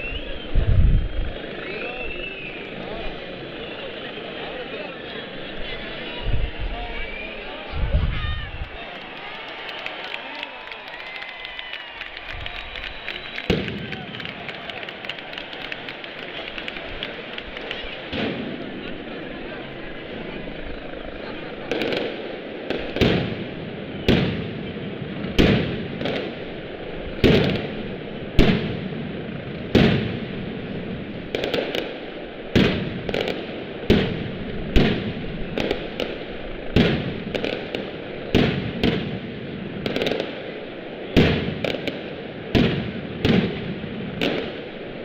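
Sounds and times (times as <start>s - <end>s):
firecracker bangs echoing: 12.5s - 19.0s, 21.6s - 45.0s.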